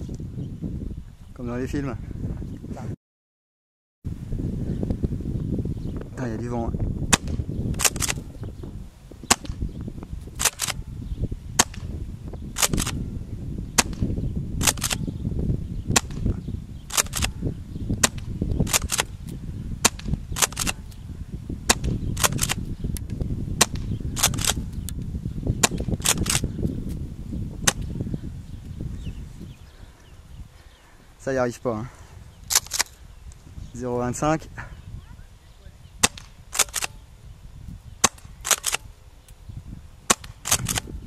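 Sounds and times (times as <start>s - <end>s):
wind on microphone: 0.0s - 3.0s, 4.1s - 41.0s
airsoft shotgun pops: 7.1s - 8.2s, 9.3s - 9.7s, 10.4s - 10.8s, 11.6s - 11.9s, 12.6s - 13.0s, 13.8s - 14.0s, 14.6s - 15.0s, 15.9s - 16.3s, 16.9s - 17.3s, 18.0s - 19.1s, 19.8s - 20.8s, 21.7s - 24.6s, 25.6s - 26.4s, 27.6s - 27.9s, 36.0s - 37.0s, 38.0s - 38.8s, 40.1s - 40.9s.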